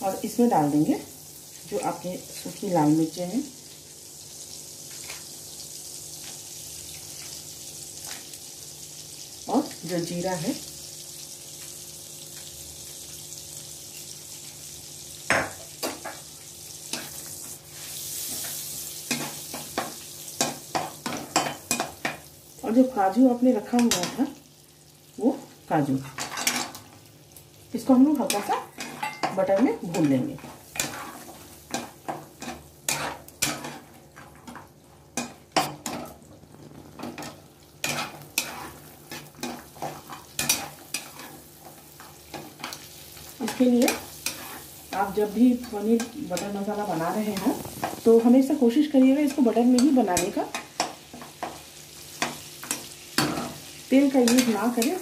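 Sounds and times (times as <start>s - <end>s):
butter sizzling in a pan: 0.0s - 55.0s
spatula scraping a pan: 16.8s - 22.2s, 28.2s - 36.2s, 36.9s - 48.2s.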